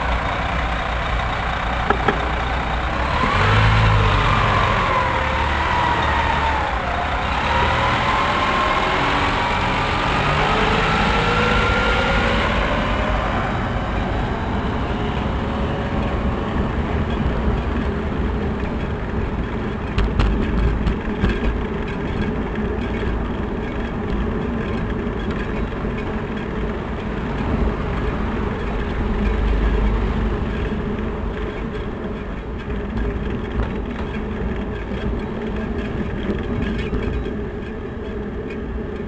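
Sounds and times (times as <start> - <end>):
road noise: 0.0 - 39.0
rattling clicks: 1.9 - 2.4.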